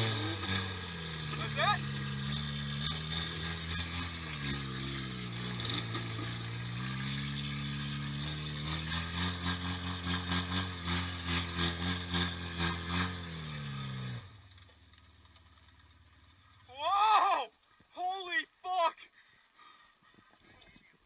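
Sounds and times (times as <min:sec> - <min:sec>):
car engine revving: 0:00.0 - 0:15.0.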